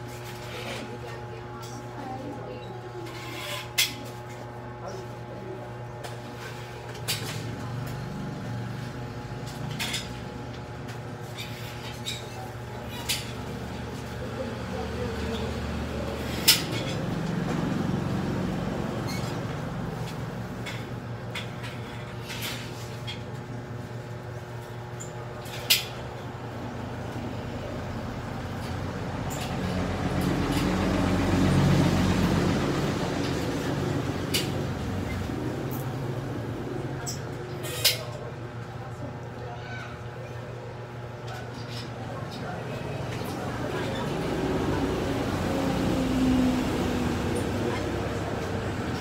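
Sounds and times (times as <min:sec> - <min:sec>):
vehicle engine rumbling: 0:26.6 - 0:37.6.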